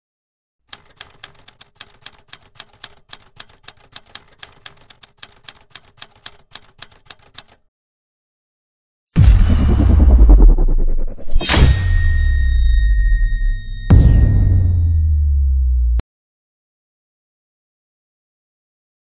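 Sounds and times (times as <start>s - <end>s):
keyboard key clicks: 0.7s - 7.6s.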